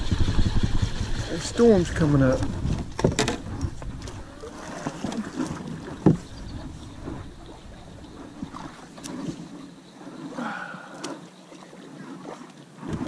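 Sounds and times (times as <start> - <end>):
paddle swishing in water: 0.0 - 13.0
paddle knocking against hull: 0.1 - 9.6.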